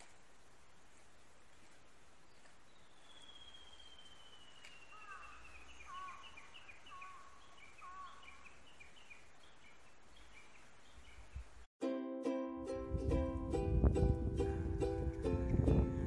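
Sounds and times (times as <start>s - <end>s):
low looping bird calls: 2.3s - 11.5s
high bird chirps: 2.8s - 11.4s.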